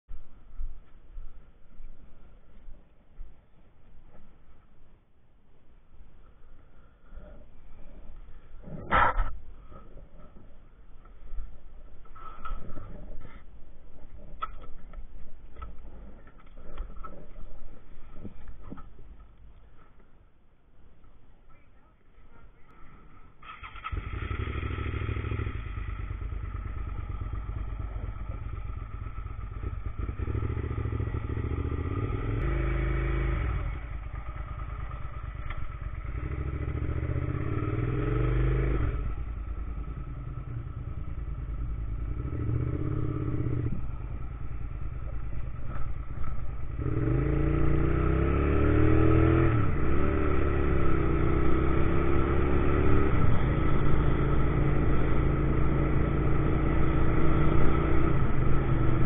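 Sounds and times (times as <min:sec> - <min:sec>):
motorcycle engine revving: 0:23.4 - 0:59.0.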